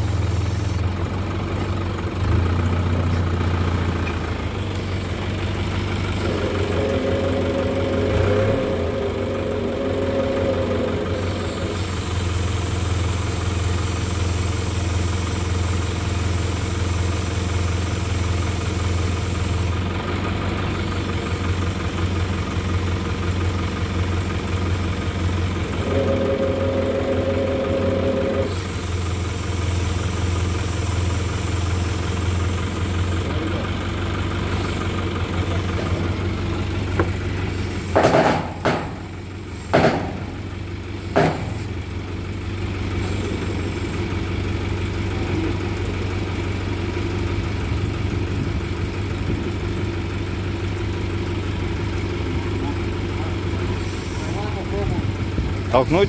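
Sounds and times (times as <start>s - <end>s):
truck engine idling: 0.0s - 56.0s
sharp knocks: 38.0s - 39.1s, 39.7s - 40.3s, 41.2s - 41.6s.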